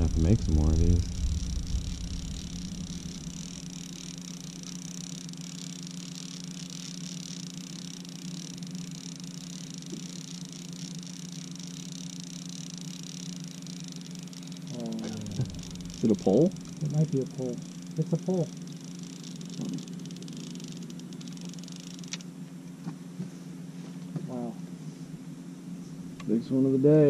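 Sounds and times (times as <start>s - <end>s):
faint hiss: 0.0s - 7.0s, 14.4s - 19.9s
boat motor humming: 0.0s - 22.2s.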